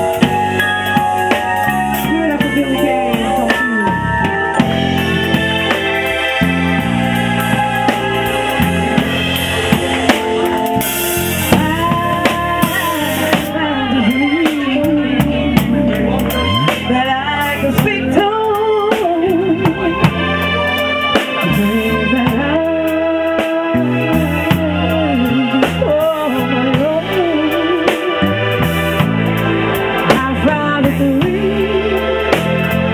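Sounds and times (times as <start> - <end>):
drum kit with cymbals: 0.0 - 32.9
electric bass guitar: 0.0 - 32.9
woman singing with vibrato: 1.8 - 4.9, 11.4 - 20.4, 21.4 - 28.2, 30.0 - 32.3.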